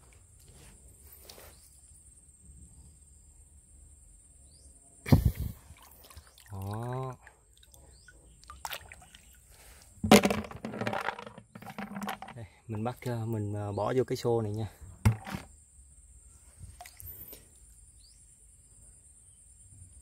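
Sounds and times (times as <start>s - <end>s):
water splashing: 5.6s - 7.8s, 8.4s - 9.3s.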